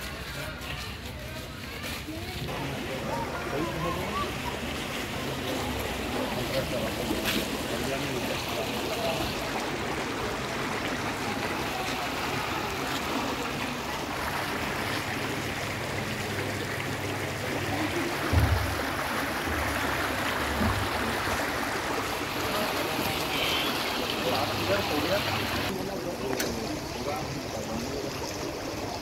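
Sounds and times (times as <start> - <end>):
water rushing in a drain: 2.4 - 29.0
low bumps on microphone: 18.2 - 19.1.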